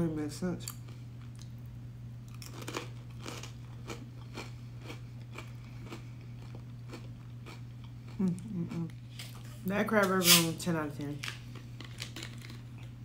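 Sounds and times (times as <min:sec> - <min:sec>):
steady low hum: 0:00.0 - 0:13.0
crunchy chewing: 0:02.3 - 0:09.6.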